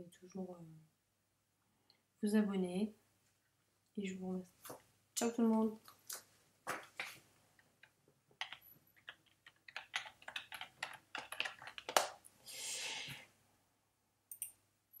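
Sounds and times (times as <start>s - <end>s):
computer keyboard clicking: 8.4s - 12.2s.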